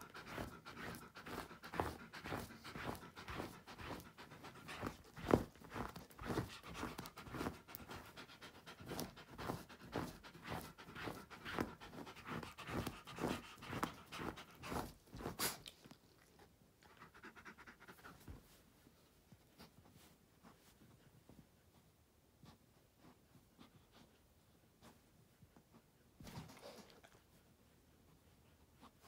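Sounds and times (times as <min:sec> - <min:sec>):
dog breathing quickly: 0:00.0 - 0:15.7, 0:16.8 - 0:18.6.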